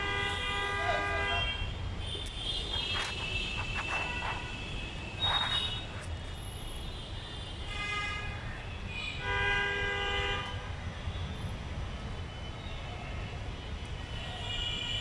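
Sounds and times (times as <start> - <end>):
vehicle horns honking: 0.0 - 6.0
traffic rumble: 0.0 - 9.2.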